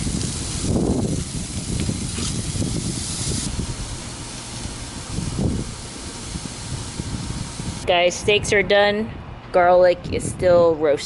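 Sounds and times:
steaks sizzling on a grill: 0.0 - 7.8.

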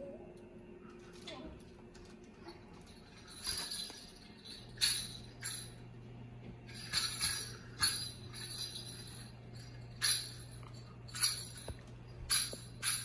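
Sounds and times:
steady low hum: 0.0 - 13.0
small bells jingling: 2.4 - 6.0, 6.7 - 13.0.

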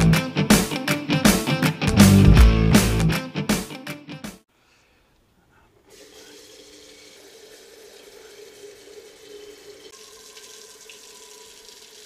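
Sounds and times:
faucet water filling kettle: 5.9 - 12.0
water filling steel pot: 5.9 - 12.0.

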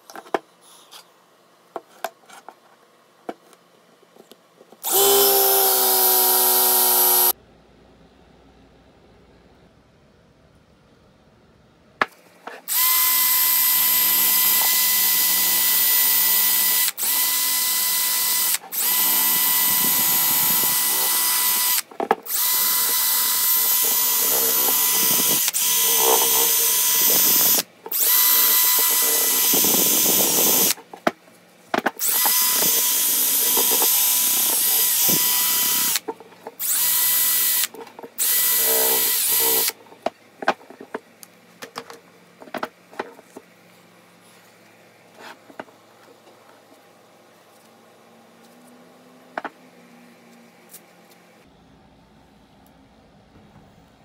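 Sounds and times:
drill wire brush scouring steel: 16.7 - 30.8, 36.6 - 39.8.

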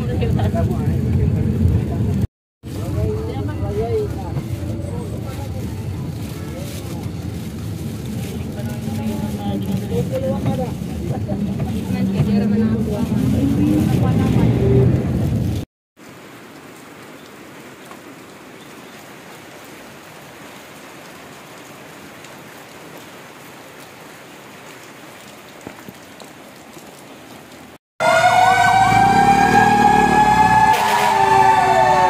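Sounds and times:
fire truck siren wailing: 28.0 - 32.0.

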